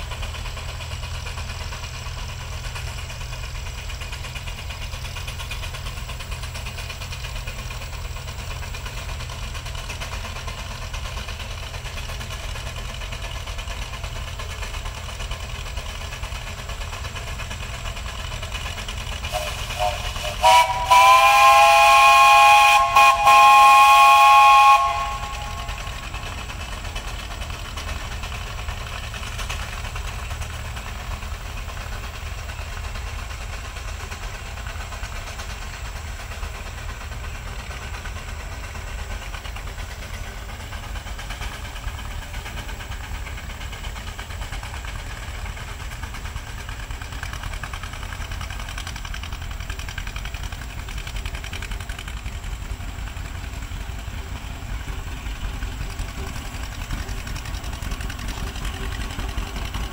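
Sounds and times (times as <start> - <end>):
steam traction engine running: 0.0 - 59.9
tractor engine running: 0.0 - 59.9.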